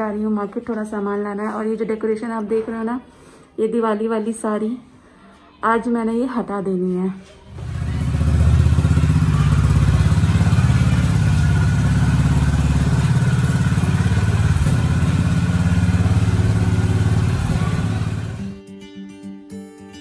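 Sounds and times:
motorcycle engine idling: 0:07.5 - 0:18.6.

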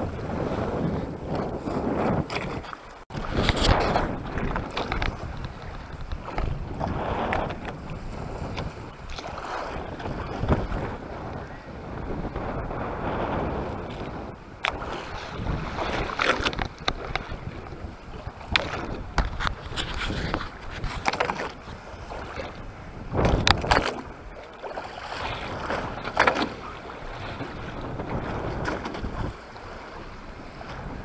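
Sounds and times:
wind on microphone: 0:00.0 - 0:31.0
water slapping against boat hull: 0:00.6 - 0:11.0, 0:13.2 - 0:31.0
knocks and splashes: 0:01.3 - 0:07.8, 0:13.9 - 0:17.6, 0:18.2 - 0:29.4.

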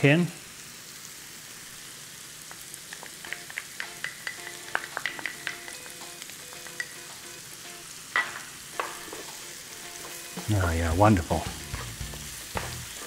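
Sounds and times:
sausage and onions sizzling: 0:00.0 - 0:13.0.

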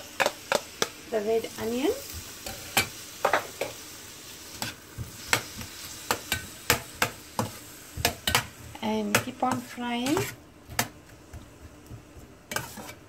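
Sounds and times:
onion sizzling in a pan: 0:00.0 - 0:13.0
metal spatula scraping a pan: 0:09.3 - 0:10.4, 0:12.5 - 0:13.0.

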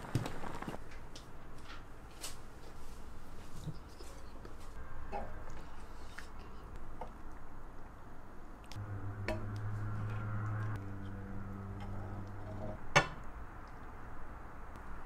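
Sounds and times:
low hum: 0:08.6 - 0:15.0.

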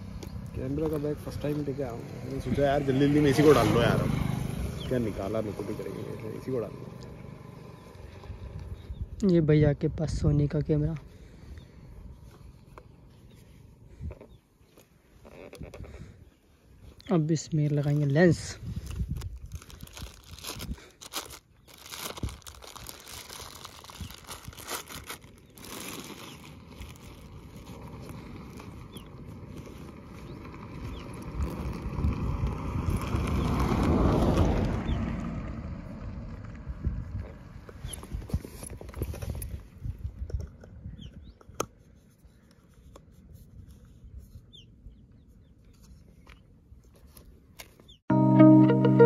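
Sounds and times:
wind rumble on microphone: 0:08.1 - 0:12.4, 0:18.2 - 0:21.0, 0:26.7 - 0:41.7
plastic bag crinkling: 0:17.7 - 0:30.4
music: 0:48.1 - 0:49.0.

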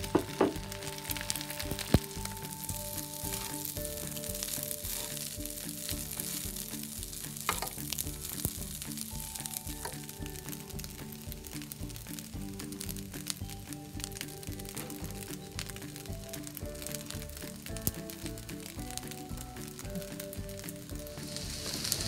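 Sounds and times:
background music: 0:00.0 - 0:22.0
fried rice sizzling in wok: 0:00.0 - 0:22.0
spatula scraping through rice: 0:03.0 - 0:08.4, 0:21.0 - 0:22.0.

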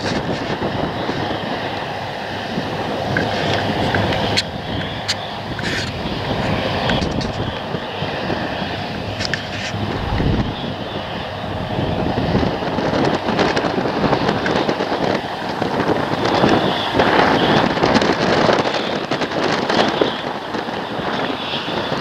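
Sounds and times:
wind buffeting microphone: 0:00.0 - 0:22.0
combine harvester running: 0:04.7 - 0:13.6.

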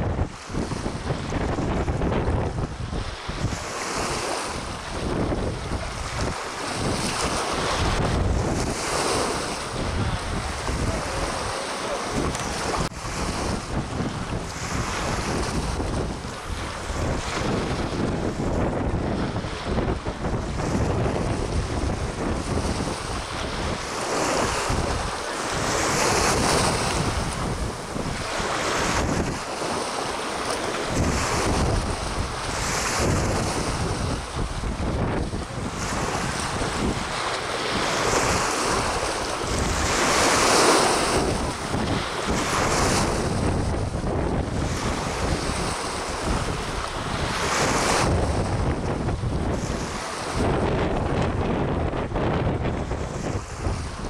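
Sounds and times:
choppy water lapping: 0:00.0 - 0:54.0
wind buffeting microphone: 0:00.0 - 0:54.0.

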